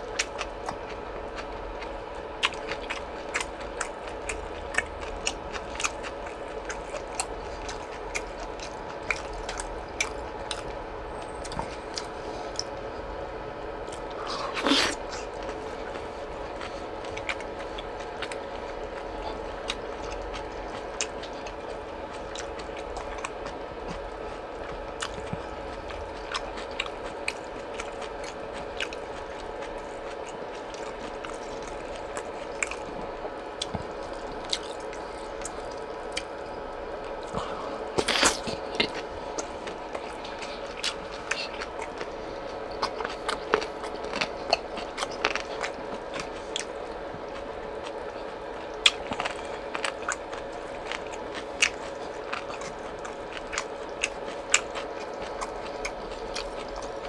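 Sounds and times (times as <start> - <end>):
chewing and wet mouth sounds: 0.0 - 57.0
faint hum: 0.0 - 57.0.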